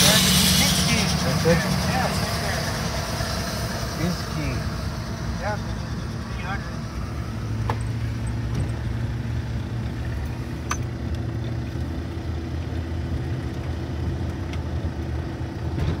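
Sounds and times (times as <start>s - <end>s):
car interior rumble: 0.0s - 16.0s.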